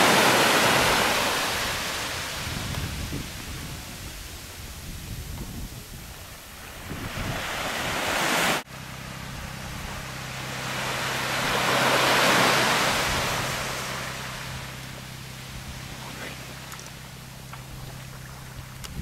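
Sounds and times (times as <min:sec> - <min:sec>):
small waves washing on sand: 0:00.0 - 0:08.7, 0:10.1 - 0:19.0
steady low hum: 0:08.7 - 0:19.0.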